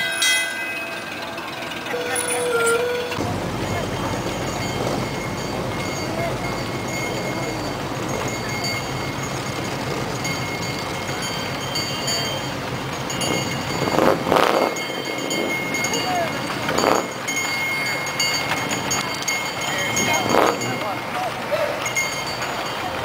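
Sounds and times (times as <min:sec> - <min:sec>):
vehicle engines rumbling: 0:00.0 - 0:23.0
faint high tones: 0:01.9 - 0:09.1
loud noisy bursts: 0:01.9 - 0:17.2.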